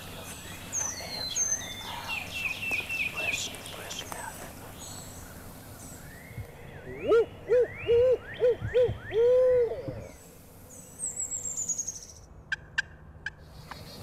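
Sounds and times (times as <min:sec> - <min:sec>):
man imitating owl hoots: 0:06.9 - 0:10.2.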